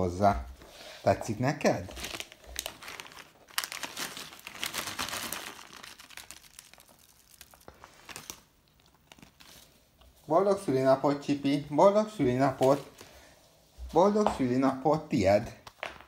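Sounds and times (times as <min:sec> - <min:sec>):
plastic wrap crinkling: 0:01.4 - 0:10.2, 0:12.1 - 0:13.3.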